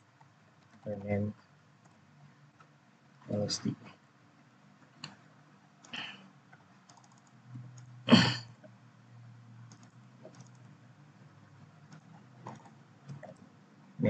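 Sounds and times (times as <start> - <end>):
keyboard typing: 0.6 - 1.2, 1.8 - 2.0, 5.0 - 7.9, 9.6 - 10.8, 11.8 - 13.5.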